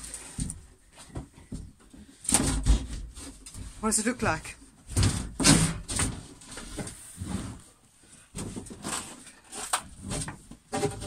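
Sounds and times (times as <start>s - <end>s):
wooden floor panel scraping: 4.9s - 11.0s.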